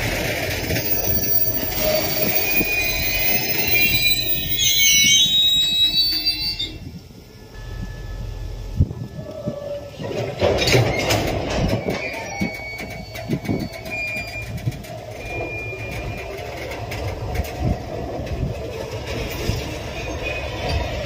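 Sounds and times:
train wheels clacking over rails: 0.0s - 4.6s, 9.4s - 21.0s
high wheel squeals: 0.0s - 21.0s.

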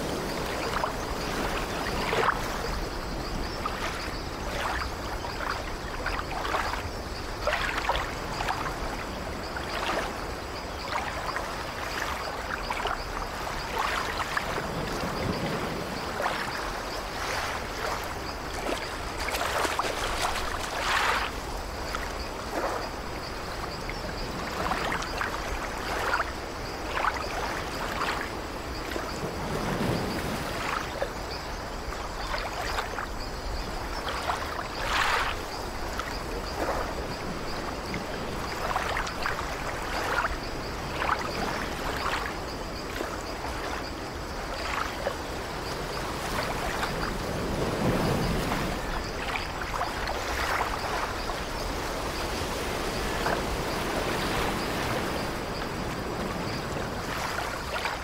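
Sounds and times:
waves washing onto shore: 0.0s - 58.0s
short splashes: 17.2s - 21.4s.

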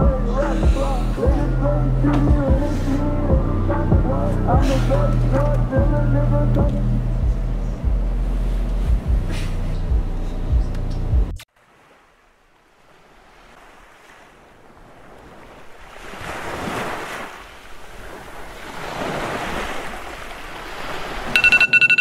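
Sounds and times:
music: 0.0s - 11.4s
ocean waves washing in: 11.5s - 22.0s
phone alarm beeping: 21.4s - 22.0s.

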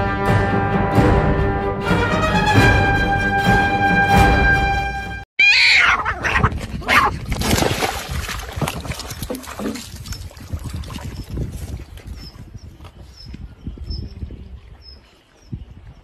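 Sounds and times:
background music: 0.0s - 5.2s
cat meowing loudly: 5.4s - 7.1s
water splashing: 7.1s - 11.9s.

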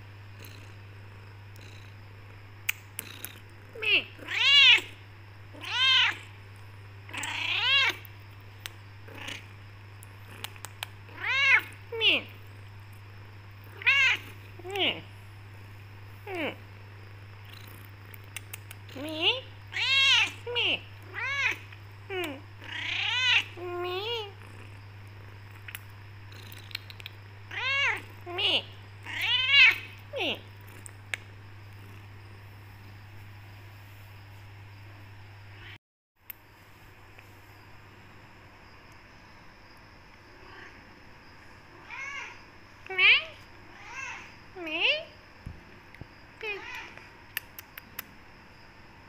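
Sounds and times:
low steady hum: 0.0s - 49.0s
cat meowing: 3.8s - 4.9s, 5.6s - 6.3s, 7.1s - 8.0s, 13.7s - 14.3s, 21.1s - 21.6s, 22.6s - 24.2s, 29.1s - 29.9s
small clicks: 6.6s - 8.8s, 10.0s - 11.0s, 17.4s - 19.0s, 25.5s - 27.2s.

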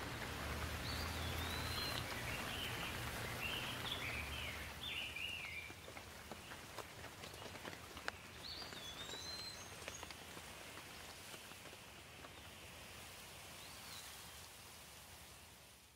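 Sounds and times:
rain drops ticking on leaves: 0.0s - 15.9s
bird chirping: 0.8s - 6.6s, 7.4s - 10.1s.

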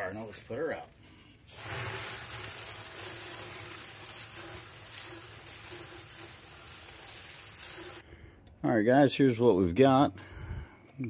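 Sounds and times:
hose spray and steam hissing: 1.5s - 8.0s.

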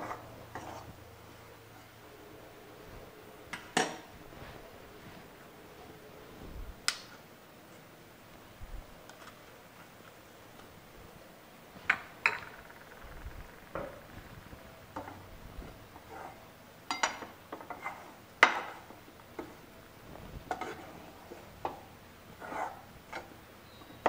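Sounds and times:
metal spoon scraping metal pan: 0.0s - 1.0s, 20.5s - 21.8s.

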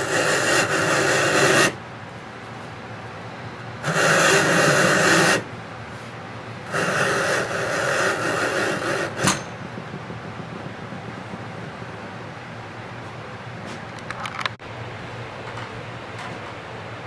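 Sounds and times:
leather rasping through splitter blade: 6.7s - 9.6s.

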